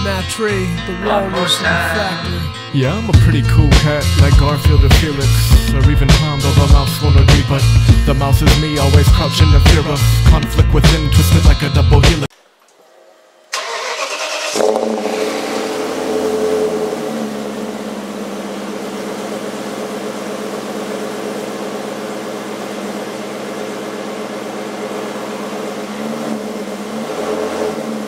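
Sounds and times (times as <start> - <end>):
car engine starting and idling: 12.8 - 28.0.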